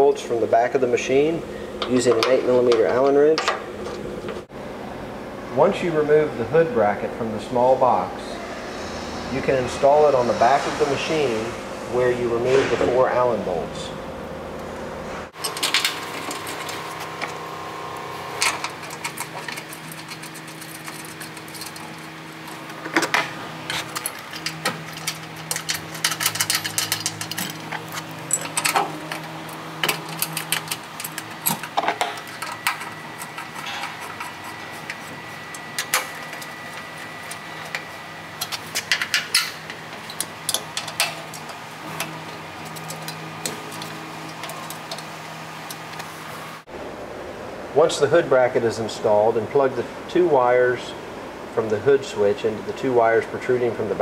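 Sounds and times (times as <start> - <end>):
steady background hum: 0.0 - 54.0
metallic clicks of bracket and bolts: 18.4 - 46.1.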